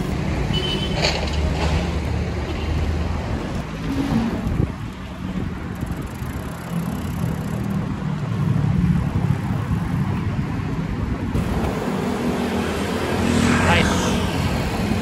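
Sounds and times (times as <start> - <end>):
engine hum: 0.0 - 15.0
motor traffic: 0.0 - 15.0
wind noise on microphone: 3.2 - 6.5.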